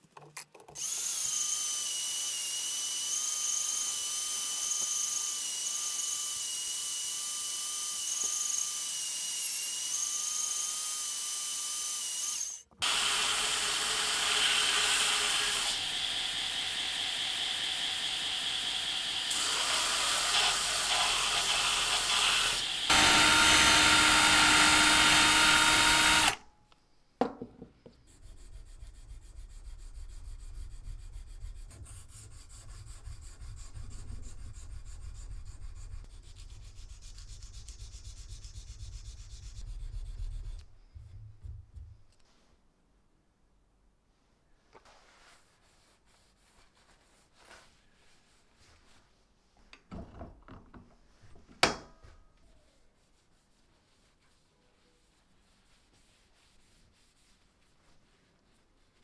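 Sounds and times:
belt grinder sanding wood: 11.9s - 26.4s
hand sanding: 44.9s - 49.2s, 52.6s - 59.0s.

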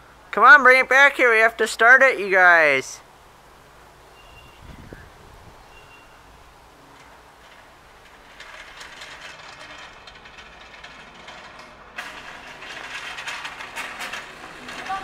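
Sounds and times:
lawn tractor engine running: 6.8s - 15.0s.

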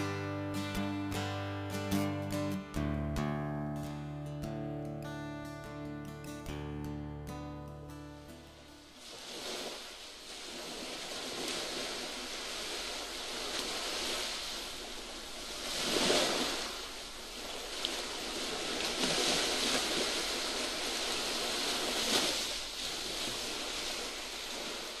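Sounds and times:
waves washing in: 8.2s - 25.0s.

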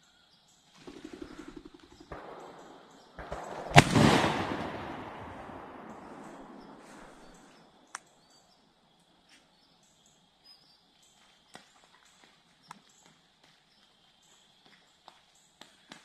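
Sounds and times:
gunshot echo rumbling: 2.0s - 7.6s.

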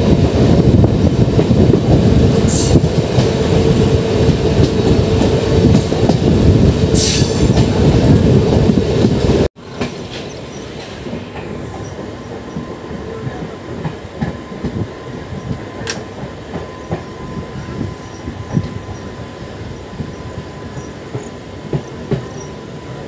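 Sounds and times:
train wheels rumbling on rail: 0.0s - 23.0s.

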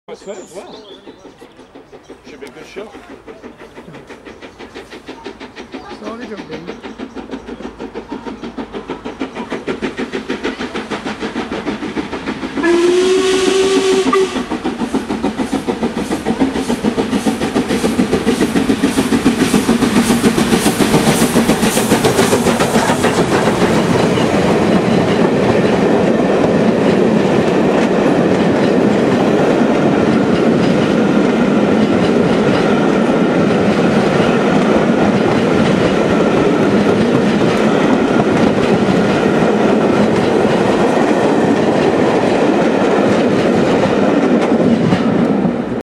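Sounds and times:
steam locomotive exhaust beats: 0.1s - 45.8s
train wheels clickety-clack: 0.2s - 45.8s
steam locomotive whistle: 12.4s - 15.0s.

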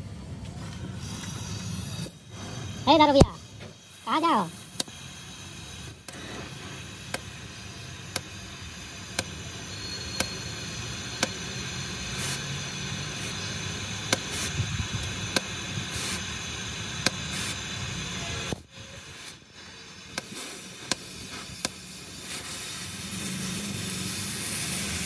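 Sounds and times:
cutting torch hissing: 0.0s - 25.0s
sharp clicks: 8.1s - 8.4s, 20.1s - 21.8s.

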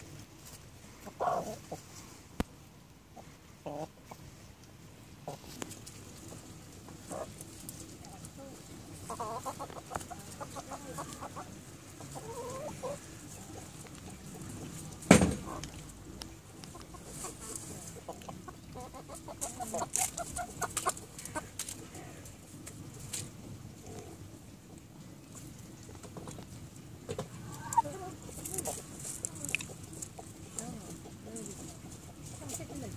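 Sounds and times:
hens clucking: 0.9s - 2.2s, 3.1s - 32.9s
sharp knock: 15.1s - 15.5s.

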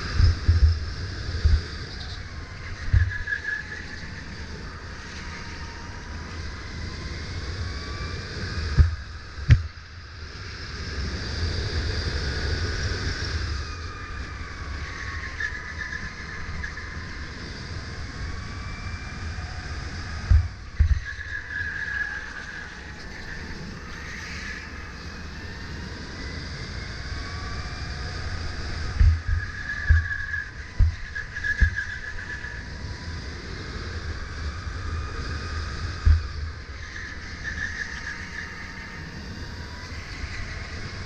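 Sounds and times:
steady low rumble: 0.0s - 4.2s, 6.5s - 13.0s, 28.2s - 31.8s
electric kart motor whining: 0.0s - 41.0s.

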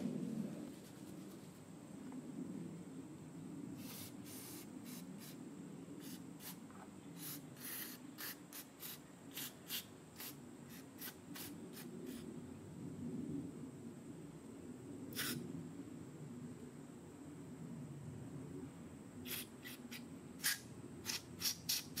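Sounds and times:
aerosol spray hissing bursts: 3.8s - 5.4s, 6.0s - 6.6s, 7.2s - 12.2s, 15.2s - 15.4s, 19.3s - 22.0s.

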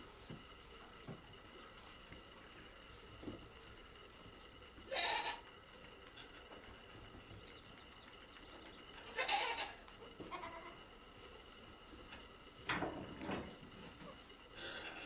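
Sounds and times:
goats bleating: 4.7s - 6.6s, 8.9s - 10.9s, 14.1s - 15.0s.

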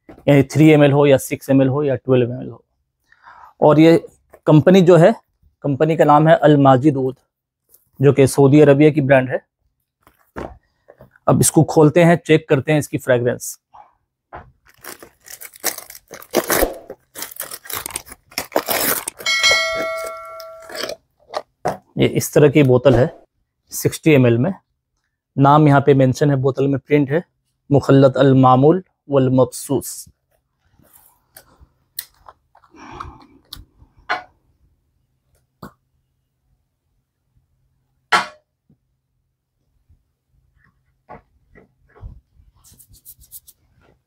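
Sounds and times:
plastic wrapping crinkling and tearing: 14.6s - 19.3s
ringing chime: 19.2s - 20.8s.

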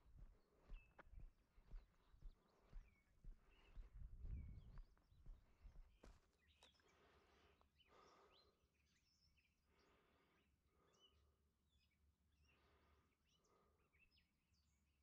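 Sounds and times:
footsteps on a trail: 0.0s - 7.2s.

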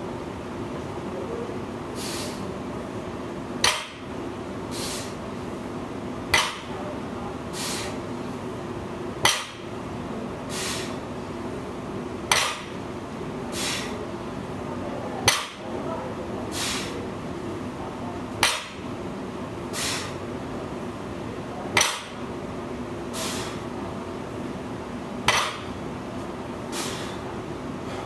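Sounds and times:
breathy hiss: 2.0s - 2.5s, 4.7s - 5.2s, 7.5s - 8.0s, 10.5s - 11.0s, 13.5s - 14.0s, 16.5s - 17.0s, 19.7s - 20.2s, 23.1s - 23.6s, 26.7s - 27.3s.

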